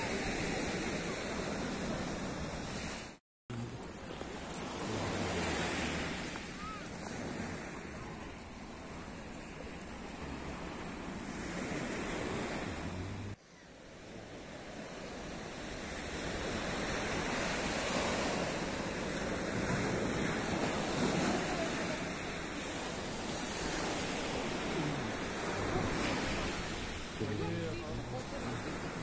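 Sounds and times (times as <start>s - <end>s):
waves breaking on a shore: 0.0s - 29.0s.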